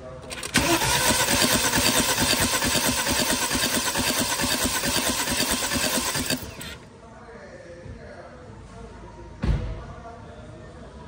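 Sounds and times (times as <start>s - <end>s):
engine cranking on starter: 0.2s - 6.8s.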